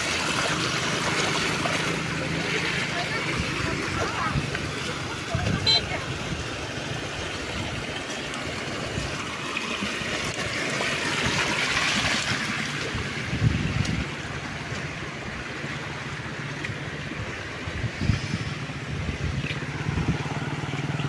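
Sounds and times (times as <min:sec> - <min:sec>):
floodwater pouring over a weir: 0:00.0 - 0:21.0.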